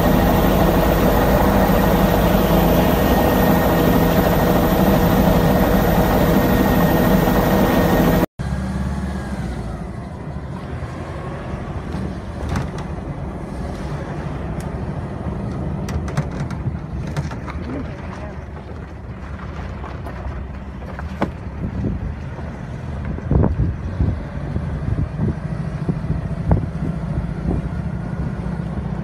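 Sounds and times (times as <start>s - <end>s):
aircraft engine noise from inside: 0.0s - 8.3s
wind rumble on microphone: 10.6s - 29.0s.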